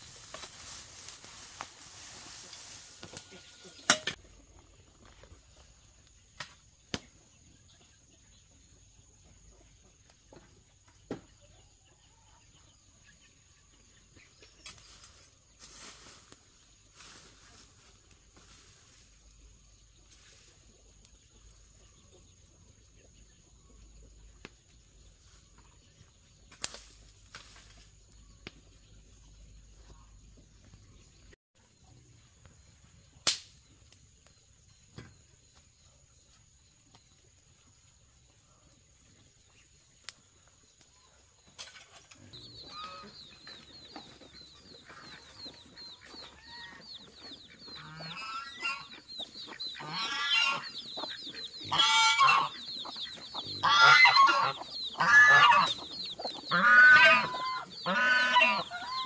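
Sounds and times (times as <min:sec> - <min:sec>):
chickens clucking: 0:34.6 - 0:59.0
chicks peeping: 0:42.2 - 0:59.0.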